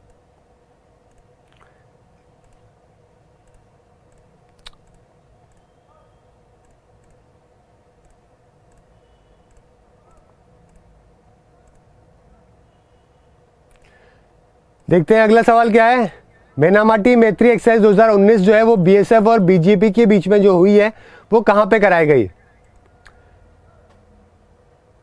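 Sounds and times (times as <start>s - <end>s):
steady low hum: 0.0s - 25.0s
computer control clicks: 1.0s - 1.7s, 2.4s - 2.7s, 3.4s - 5.8s, 6.6s - 7.3s, 8.0s - 11.0s, 11.6s - 11.9s, 22.6s - 23.2s.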